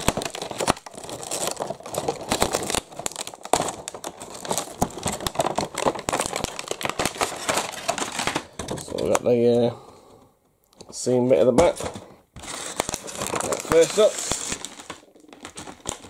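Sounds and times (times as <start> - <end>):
cardboard box crinkling and rustling: 0.0 - 9.1, 11.7 - 16.0.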